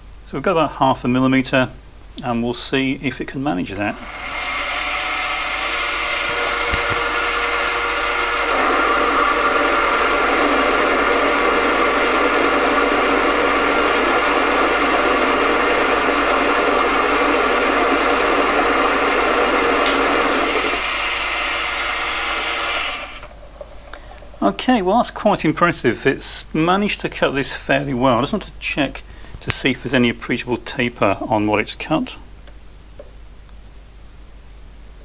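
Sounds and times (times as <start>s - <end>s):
harsh grinding of metal cutting: 3.8s - 23.3s
lathe motor and gear whine: 3.8s - 23.3s.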